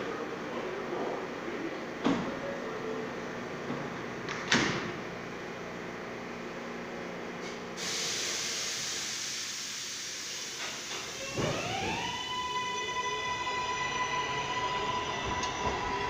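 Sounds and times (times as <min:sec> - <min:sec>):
high hiss of air: 0:07.8 - 0:11.2
stopped train humming: 0:07.8 - 0:16.0.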